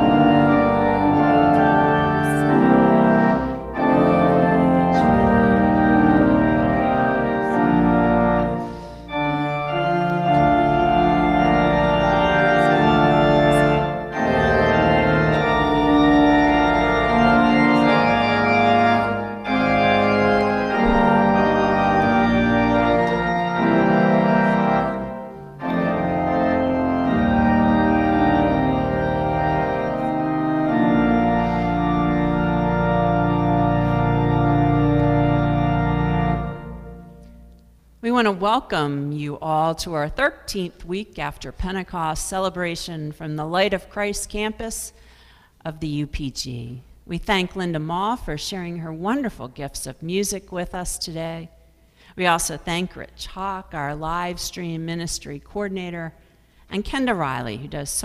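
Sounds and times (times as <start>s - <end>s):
organ playing hymn chords: 0.0s - 40.5s, 50.1s - 58.0s.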